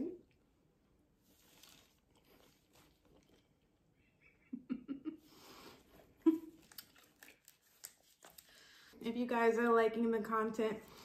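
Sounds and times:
woman chewing: 0:01.3 - 0:03.9, 0:06.4 - 0:08.6.

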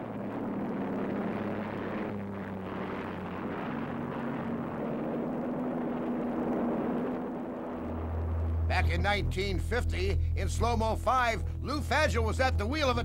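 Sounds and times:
hull rushing on water: 0:00.0 - 0:09.0
aircraft engine droning: 0:00.0 - 0:13.0.

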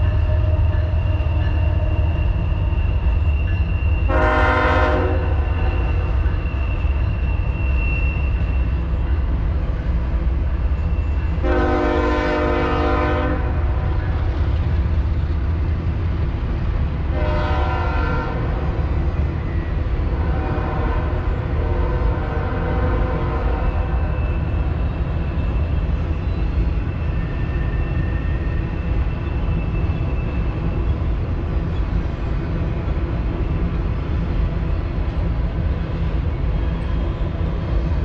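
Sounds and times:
freight train rumbling: 0:00.0 - 0:38.0
train air horn blasts: 0:04.1 - 0:06.0, 0:11.4 - 0:13.8, 0:17.1 - 0:18.6, 0:20.1 - 0:24.2.

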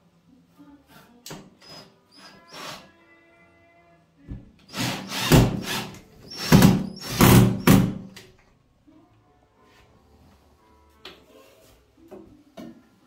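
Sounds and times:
impact driver whirring and hammering: 0:04.7 - 0:08.0.

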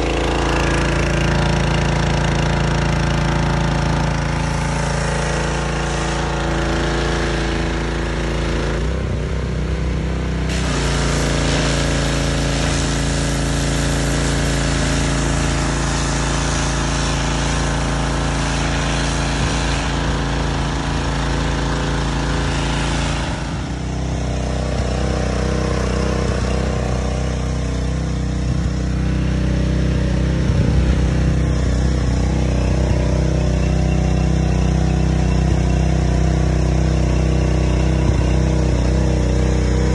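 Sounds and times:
small engine running: 0:00.0 - 0:39.9
loud hiss: 0:10.5 - 0:21.1.

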